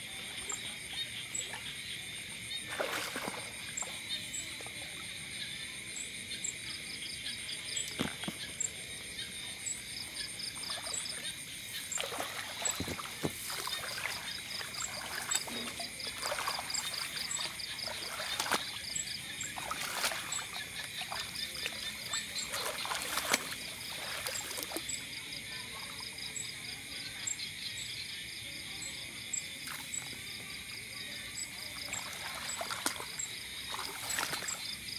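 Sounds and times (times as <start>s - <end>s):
insects chirping: 0.0s - 34.9s
fishing rods rustling and knocking: 7.9s - 8.6s, 12.1s - 16.5s.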